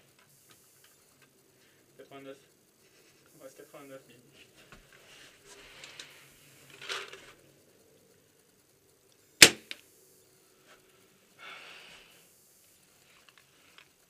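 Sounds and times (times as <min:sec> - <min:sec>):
soft rustling: 0:02.7 - 0:07.4
paintball marker shot: 0:09.4 - 0:09.8.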